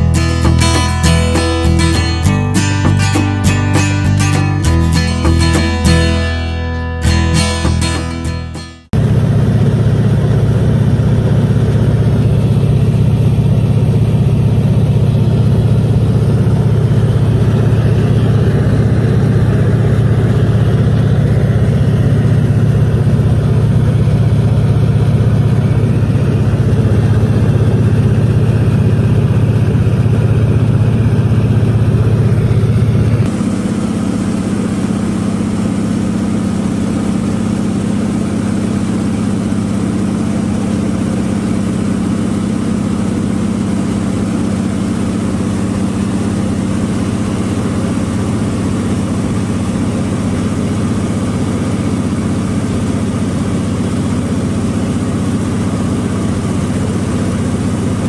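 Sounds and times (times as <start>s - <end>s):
large engine humming: 0.0s - 58.0s.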